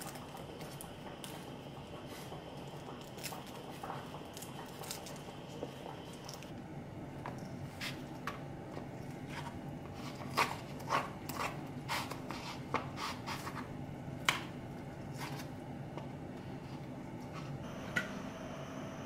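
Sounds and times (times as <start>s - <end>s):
chopsticks scraping a plastic plate: 9.2s - 13.7s.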